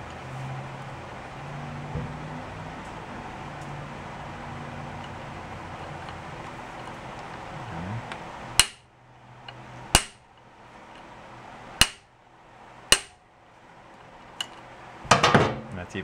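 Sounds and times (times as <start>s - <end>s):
hammer striking impact driver: 8.6s - 8.8s, 10.0s - 10.2s, 11.8s - 12.1s, 12.9s - 13.2s.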